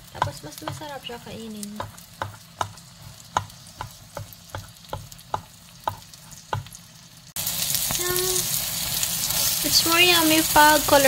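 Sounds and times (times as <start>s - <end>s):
spatula tapping in frying pan: 0.0s - 6.8s
oil sizzling: 0.0s - 11.0s.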